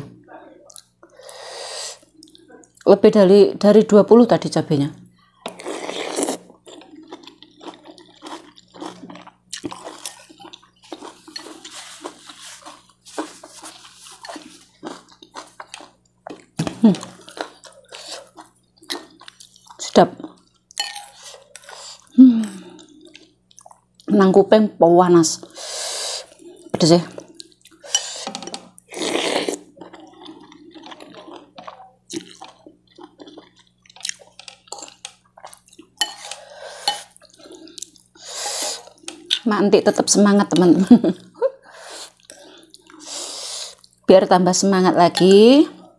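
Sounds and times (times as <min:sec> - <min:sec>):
chewing: 0:05.5 - 0:24.1, 0:26.2 - 0:39.5, 0:42.1 - 0:43.1
slurping noodles: 0:05.6 - 0:06.5, 0:28.9 - 0:31.1, 0:38.2 - 0:39.0.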